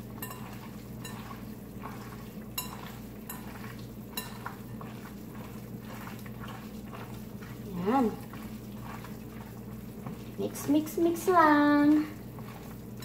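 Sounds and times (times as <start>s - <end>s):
hands squishing ground meat: 0.0s - 10.5s
steady low hum: 0.0s - 13.0s.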